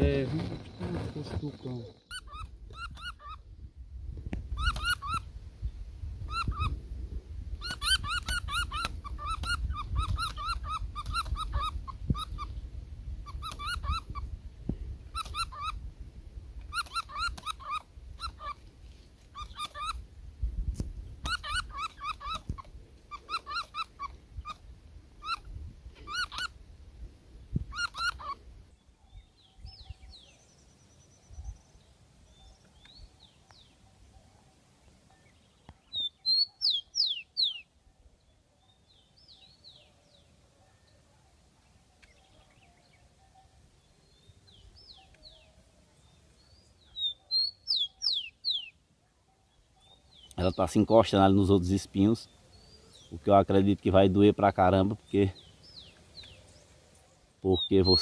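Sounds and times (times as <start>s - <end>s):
bird chirps: 0.0s - 3.4s, 4.5s - 6.8s, 7.6s - 14.4s, 15.1s - 15.8s, 16.6s - 18.7s, 19.3s - 20.0s, 21.0s - 26.6s, 27.5s - 58.0s
bat squealing in distress: 2.0s - 3.4s, 4.6s - 5.2s, 7.6s - 12.5s, 13.2s - 14.2s, 15.2s - 15.8s, 16.7s - 18.6s, 19.4s - 20.0s, 21.3s - 24.6s, 26.1s - 26.5s, 27.7s - 28.4s.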